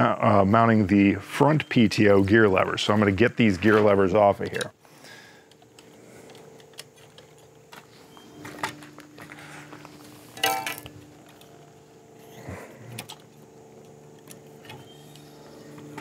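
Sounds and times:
ringing metal clank: 10.4s - 10.9s.

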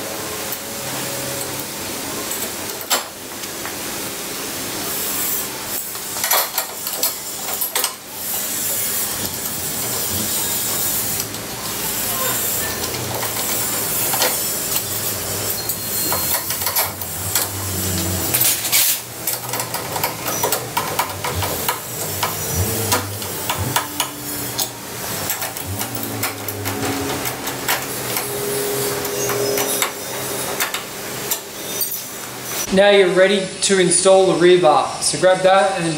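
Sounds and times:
hand tools clinking on metal: 6.0s - 8.0s, 9.0s - 32.6s.

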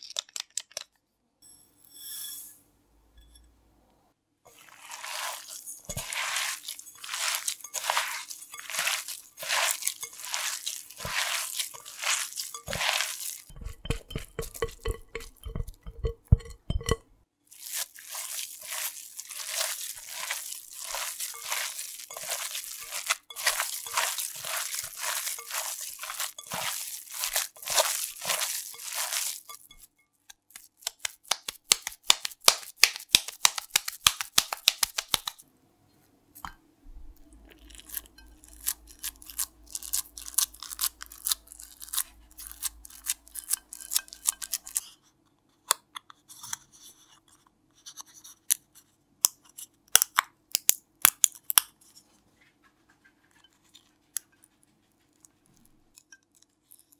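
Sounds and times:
hands kneading raw meat: 4.5s - 35.4s
fingers patting meat into dish: 5.0s - 17.0s, 30.5s - 35.4s
sharp wet clicks: 30.5s - 35.4s.

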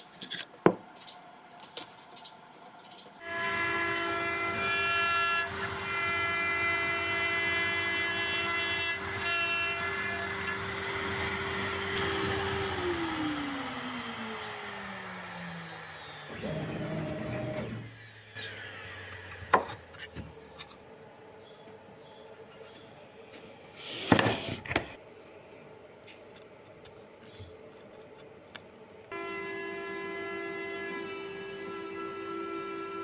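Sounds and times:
router spindle whine: 3.2s - 19.5s, 29.1s - 33.0s
spindle winding down: 3.4s - 18.6s.

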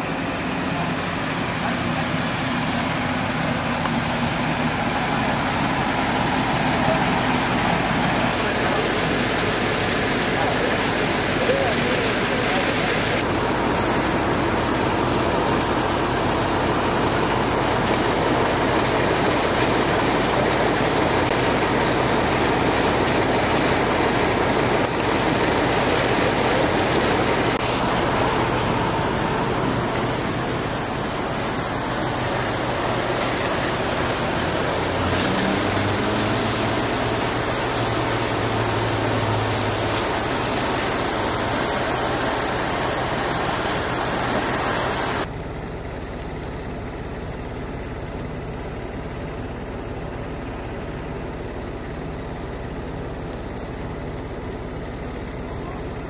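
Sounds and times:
water rushing from fire hose: 0.0s - 45.3s.

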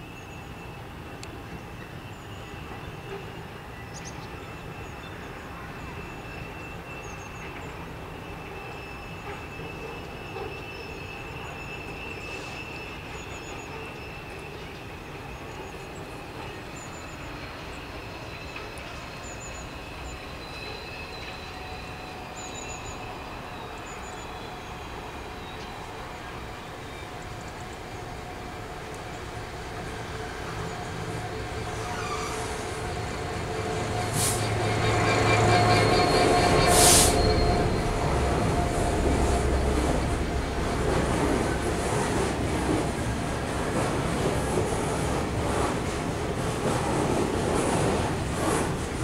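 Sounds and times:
diesel locomotive engine running: 13.4s - 49.0s
high-pitched wheel squeal: 31.6s - 32.8s, 33.9s - 39.6s.

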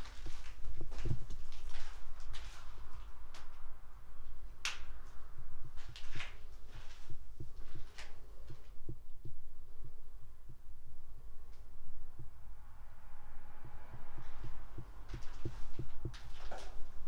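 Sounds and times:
grit crunching underfoot: 0.0s - 3.5s.

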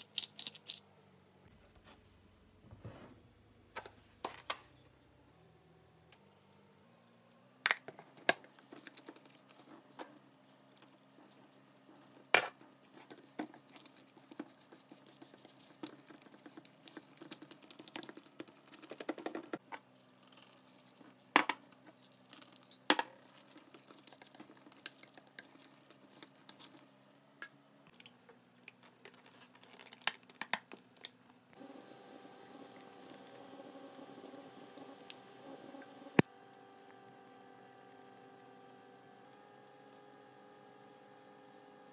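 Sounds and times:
whisk squishing wet mixture: 11.0s - 19.6s, 23.2s - 27.0s.

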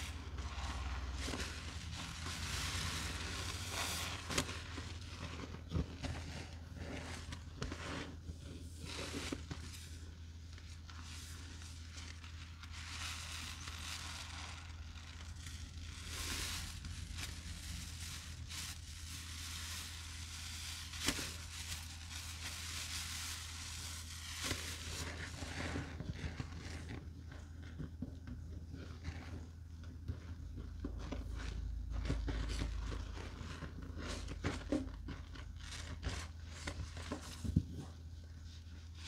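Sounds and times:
wet gritty sponge crackling: 0.0s - 27.0s.

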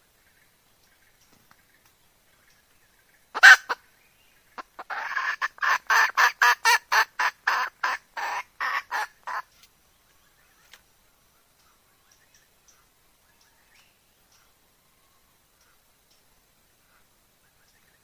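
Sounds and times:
hen cackling: 3.3s - 3.8s, 4.6s - 9.5s.

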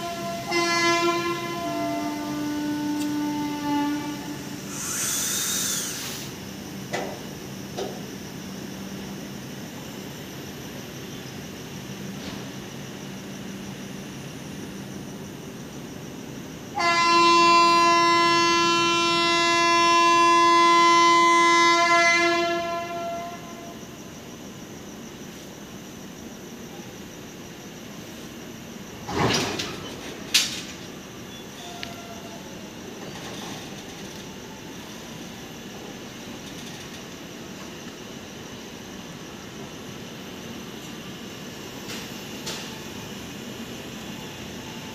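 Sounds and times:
locomotive horn blast: 0.0s - 4.6s, 16.8s - 23.8s
faint low train hum: 0.0s - 44.9s.

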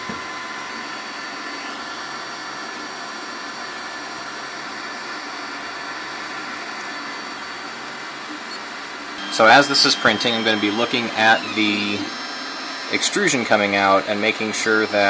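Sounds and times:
cooling fans whirring: 0.0s - 15.0s
faint whining tones: 6.4s - 15.0s.

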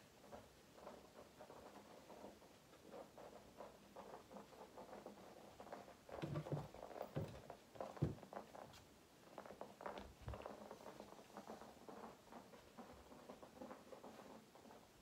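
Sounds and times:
ball bumps: 6.1s - 8.8s.

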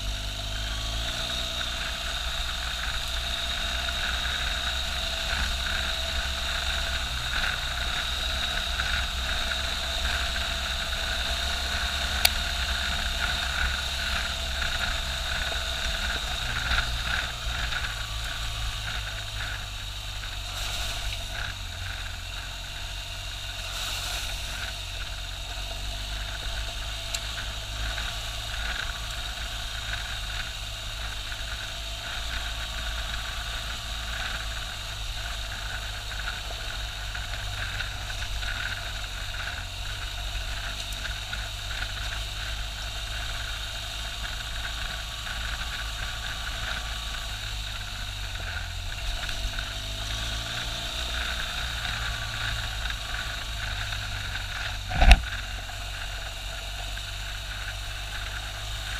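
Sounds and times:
motorcycle engine running: 0.0s - 58.9s
tyre and wind noise: 54.7s - 55.3s.

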